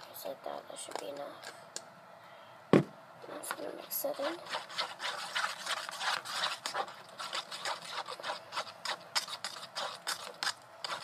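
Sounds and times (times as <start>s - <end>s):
utensil scraping a bowl: 3.5s - 11.0s.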